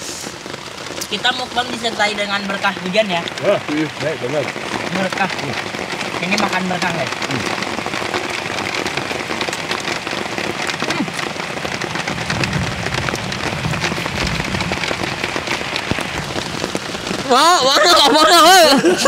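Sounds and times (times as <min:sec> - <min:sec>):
rain on an umbrella: 0:00.0 - 0:19.0.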